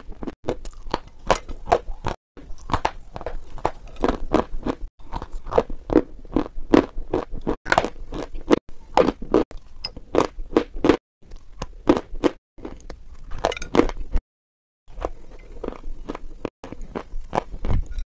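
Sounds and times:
crunchy food being chewed: 0:00.0 - 0:14.2, 0:14.9 - 0:18.0.

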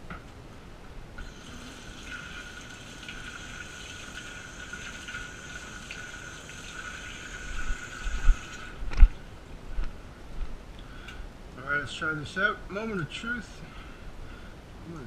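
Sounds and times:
tap water running into sink: 0:01.2 - 0:08.7.

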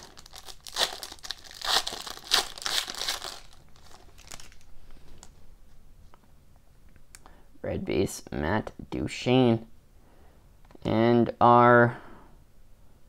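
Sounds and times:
foil wrapper crinkling: 0:00.0 - 0:05.3.

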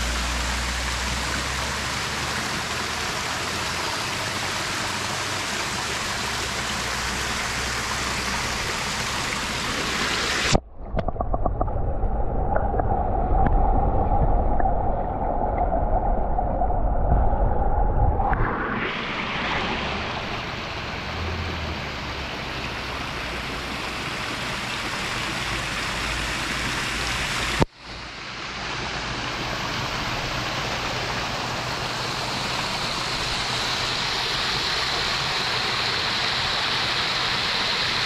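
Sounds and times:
water splashing down stone cascade: 0:00.0 - 0:10.6, 0:19.1 - 0:38.0.

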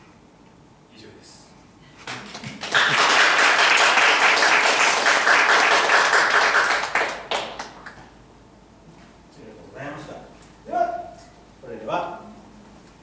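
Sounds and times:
audience applauding: 0:02.0 - 0:08.0.

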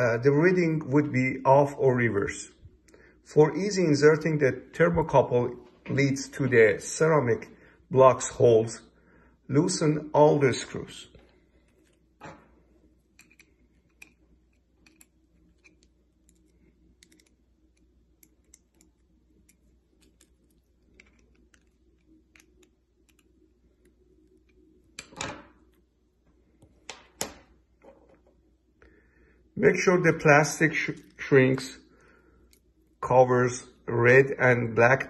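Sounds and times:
screws clicking and scraping: 0:13.1 - 0:17.4.

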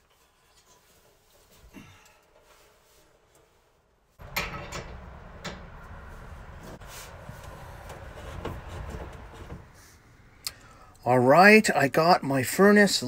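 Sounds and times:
heater low steady noise: 0:04.2 - 0:10.4.

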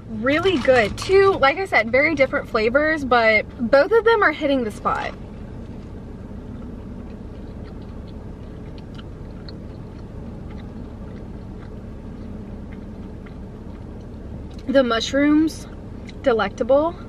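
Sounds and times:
low hum in car cabin: 0:00.0 - 0:17.0
person chewing: 0:05.6 - 0:14.7.

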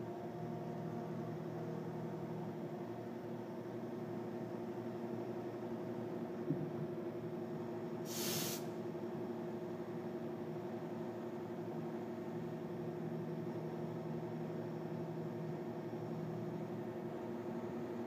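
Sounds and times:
short hiss: 0:08.1 - 0:08.8.

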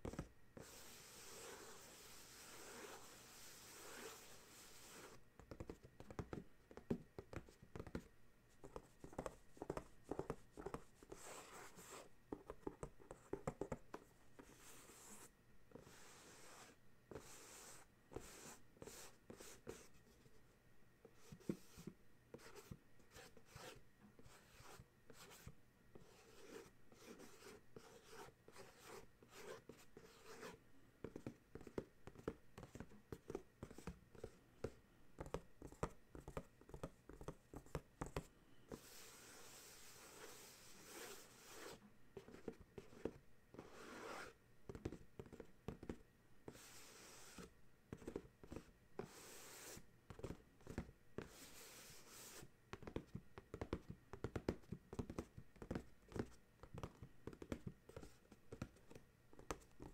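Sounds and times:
fingers tapping on cardboard: 0:52.7 - 0:59.9.

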